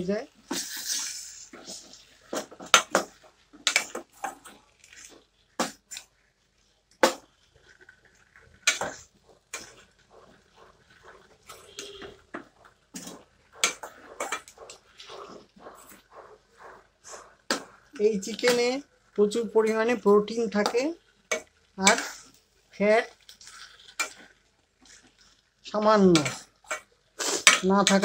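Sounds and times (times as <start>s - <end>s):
spatula scraping metal pot: 0.4s - 28.0s.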